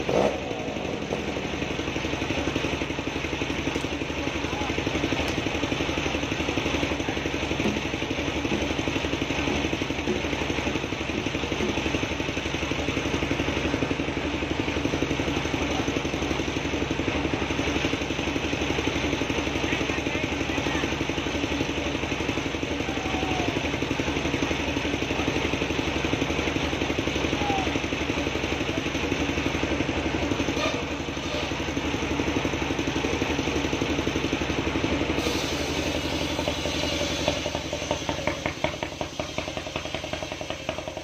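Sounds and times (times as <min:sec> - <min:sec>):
sawmill engine idling: 0:00.0 - 0:41.0.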